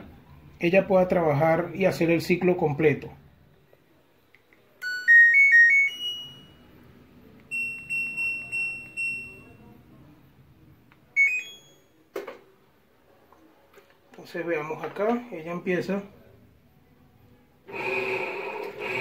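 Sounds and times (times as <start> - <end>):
high button-press beeps: 11.2 - 11.9.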